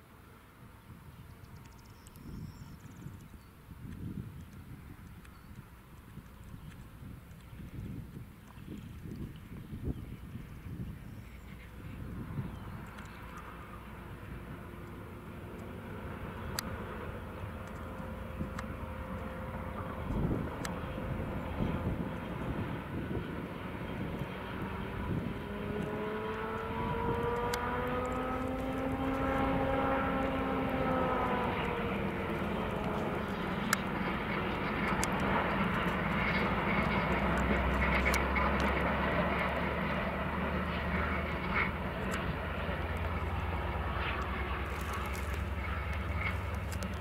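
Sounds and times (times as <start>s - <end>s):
distant engine drone: 0.0s - 47.0s
low steady hum: 0.0s - 47.0s
outdoor rumble: 1.2s - 47.0s
pitched hum rising and falling: 12.0s - 47.0s.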